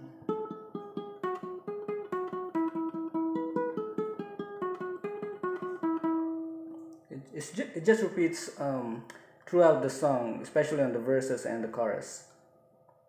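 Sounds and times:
ukulele picking riff: 0.0s - 10.9s.

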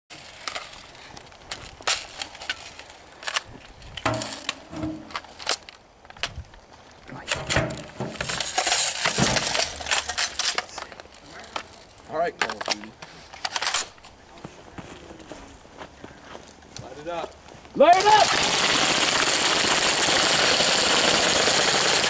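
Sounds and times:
scraping rustle: 7.1s - 15.6s.

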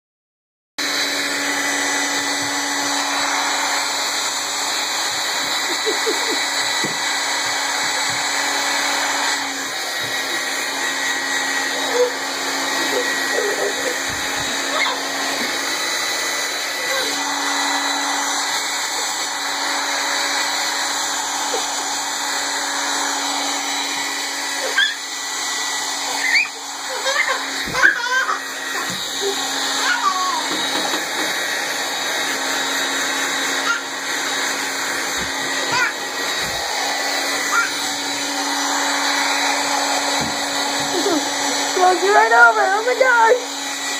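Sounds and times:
hair dryer blowing: 0.8s - 43.9s
toddler squealing: 14.6s - 15.1s, 24.6s - 25.1s, 26.1s - 28.9s, 29.6s - 30.5s, 33.5s - 34.1s, 37.4s - 38.0s.

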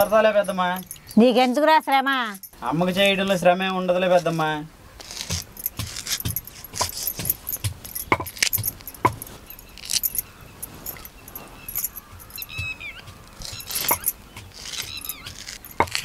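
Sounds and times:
pestle pounding in stone mortar: 5.0s - 10.1s, 11.8s - 16.0s.

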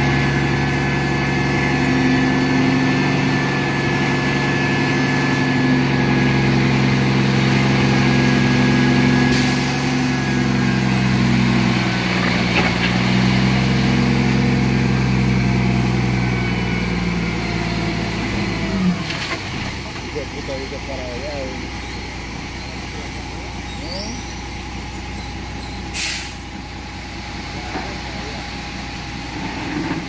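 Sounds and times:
diesel truck engine running: 0.0s - 30.0s
soil sliding off trailer: 11.0s - 14.7s, 29.2s - 30.0s.

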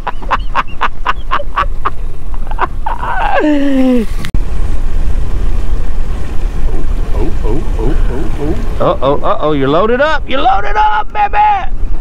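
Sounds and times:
men laughing: 0.0s - 4.2s, 6.6s - 9.6s
wind rumble on microphone: 1.2s - 12.0s.

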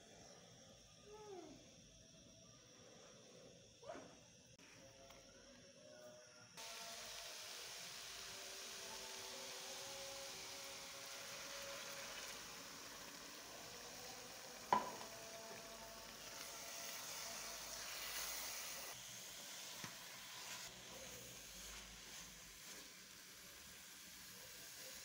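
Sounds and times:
food sizzling in a pan: 6.6s - 25.0s.

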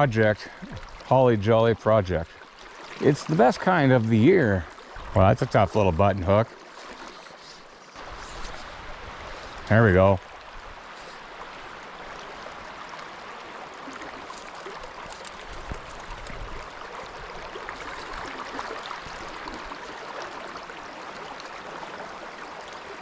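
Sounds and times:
stream babbling over rocks: 0.0s - 23.0s.

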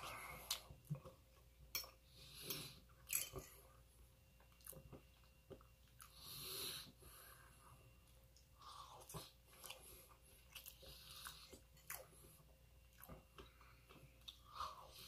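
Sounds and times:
chewing rice: 8.4s - 15.0s.

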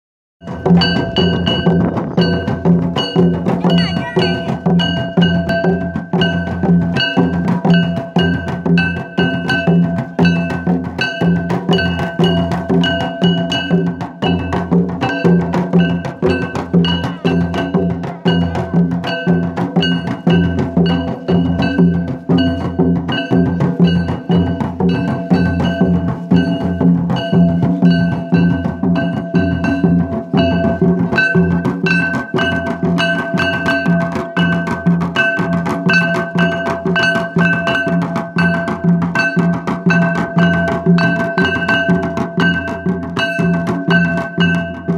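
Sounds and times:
hand cymbals ringing: 0.4s - 44.9s
hand drums beating fast rhythm: 0.4s - 44.9s.

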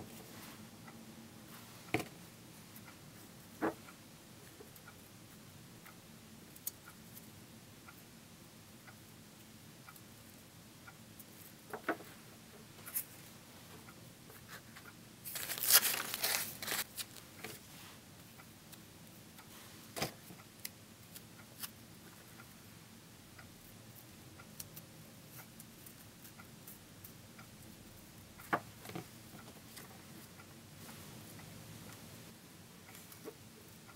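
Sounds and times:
soft paper crinkles: 14.4s - 17.6s
paper tearing and crumpling: 15.3s - 17.1s.

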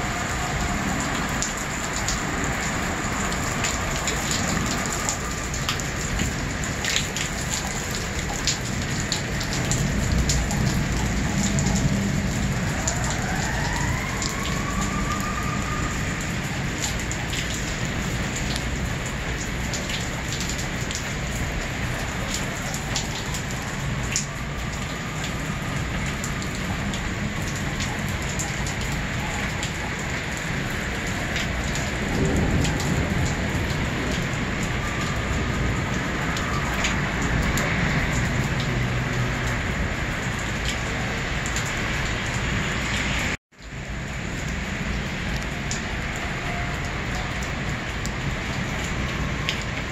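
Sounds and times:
heavy rain pouring: 0.0s - 49.9s
low rumble of thunder: 8.3s - 22.2s, 30.9s - 38.8s.

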